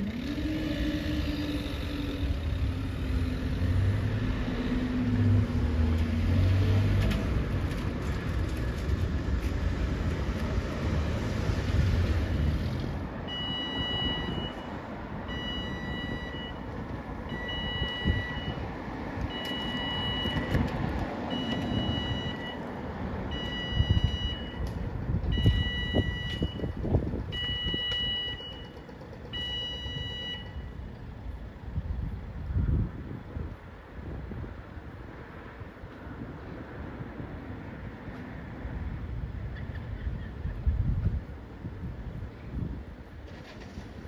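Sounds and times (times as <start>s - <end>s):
road traffic rumble: 0.0s - 44.0s
level crossing two-tone beep: 13.3s - 14.6s, 17.3s - 18.6s.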